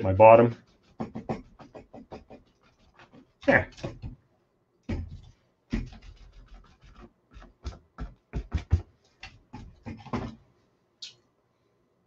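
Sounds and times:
paper towel scratching canvas: 0.0s - 4.2s, 4.9s - 10.4s.

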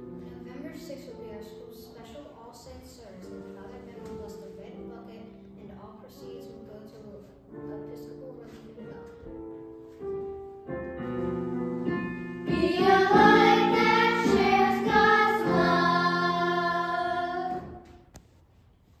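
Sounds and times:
instrumental accompaniment: 8.6s - 18.1s
children singing in unison: 12.5s - 17.8s.

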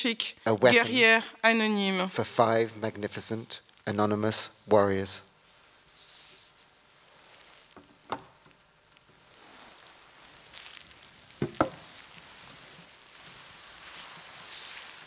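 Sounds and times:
faint rustling and handling: 5.4s - 15.0s
knocks on table: 11.4s - 11.8s.

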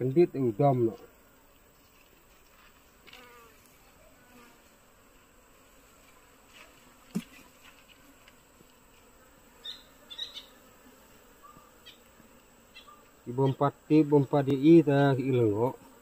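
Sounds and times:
bees buzzing faintly: 0.0s - 16.0s
small ticks: 1.8s - 3.8s, 6.1s - 10.5s.

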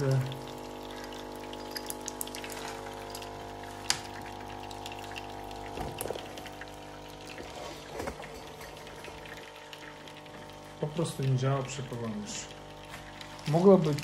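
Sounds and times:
coffee streaming: 0.0s - 14.0s
pump humming: 0.0s - 14.0s.

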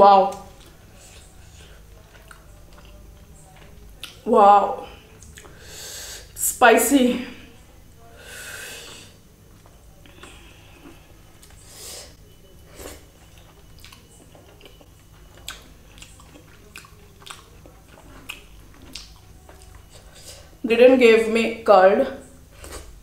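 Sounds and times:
chewing food: 0.3s - 5.6s, 12.5s - 20.6s.

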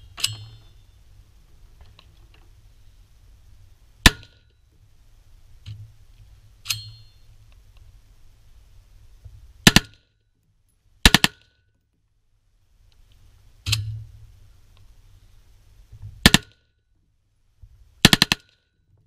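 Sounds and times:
short metallic ring: 0.0s - 1.0s, 6.6s - 7.3s
rifle shots: 9.6s - 10.0s, 11.0s - 11.5s, 16.2s - 16.5s, 18.0s - 18.6s.

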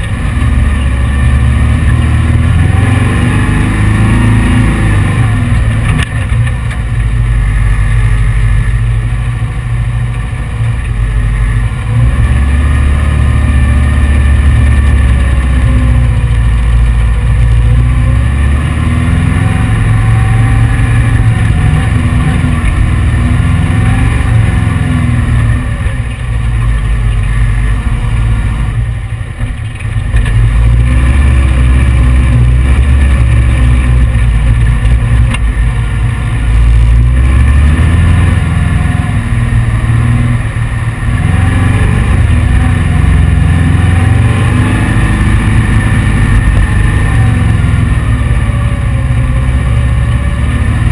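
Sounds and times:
car engine under throttle: 0.0s - 50.9s.

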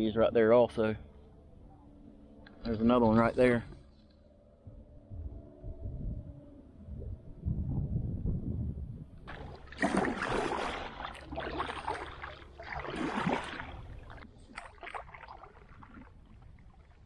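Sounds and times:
paddle strokes splashing water: 9.3s - 17.0s.

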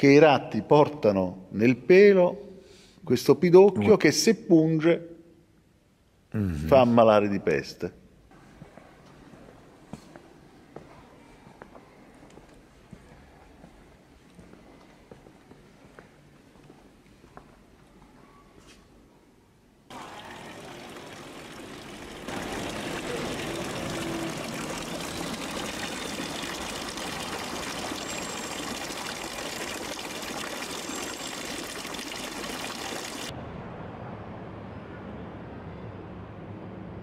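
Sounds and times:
fountain water splashing into basin: 19.9s - 33.3s.

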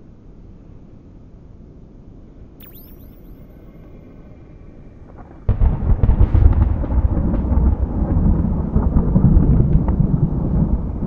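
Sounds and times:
thunder crack and rumble: 5.5s - 11.0s.

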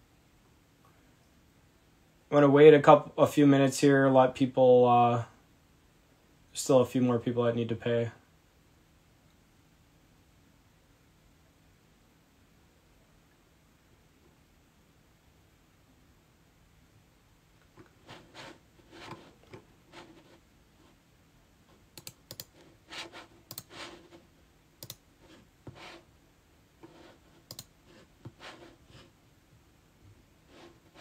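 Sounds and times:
typing on computer keyboard: 22.0s - 23.9s, 24.8s - 25.0s, 27.4s - 27.7s.

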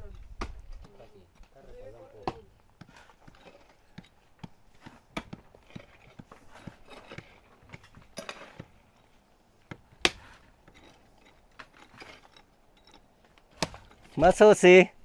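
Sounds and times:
soil scraping: 0.0s - 14.6s
hoe chopping into soil: 2.2s - 8.8s, 9.7s - 10.5s, 13.5s - 14.2s.

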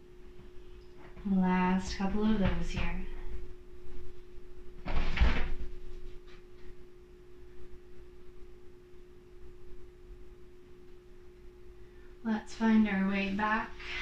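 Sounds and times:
quiet breathing: 11.7s - 12.3s, 13.7s - 14.0s.

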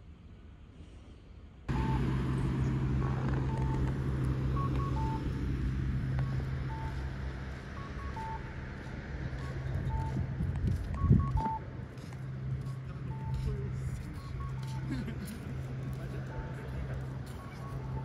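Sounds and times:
short electronic beeps: 3.0s - 8.5s, 9.3s - 14.9s, 15.9s - 18.0s.

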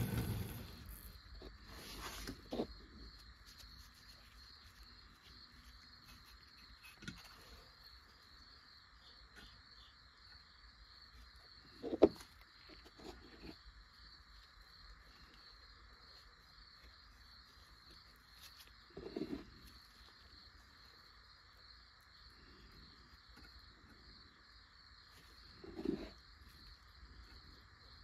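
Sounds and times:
stick scraping putty: 0.0s - 1.0s, 25.6s - 26.2s.

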